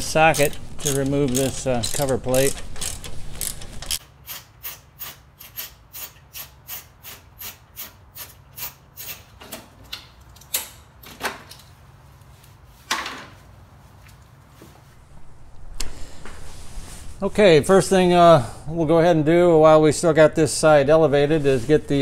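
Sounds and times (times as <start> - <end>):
ratchet clicking: 0.3 - 9.2.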